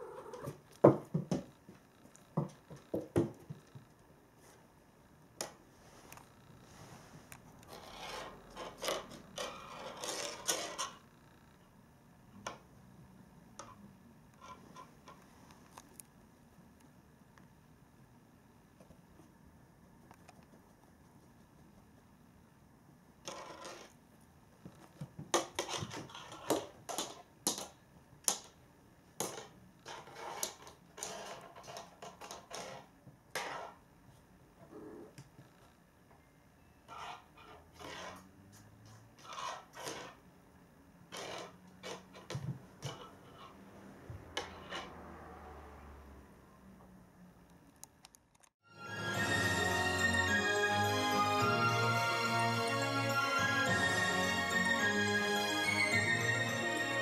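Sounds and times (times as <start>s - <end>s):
toy scraping on wooden floor: 5.9s - 11.0s, 14.4s - 15.2s, 23.2s - 24.0s, 25.3s - 27.2s, 29.2s - 33.8s, 36.9s - 40.2s, 41.1s - 45.2s.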